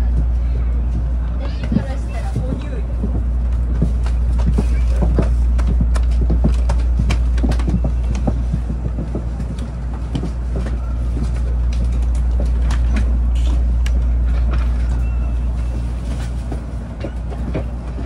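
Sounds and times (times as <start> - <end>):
train interior low rumble: 0.0 - 18.0
wheels clicking and knocking: 0.0 - 18.0.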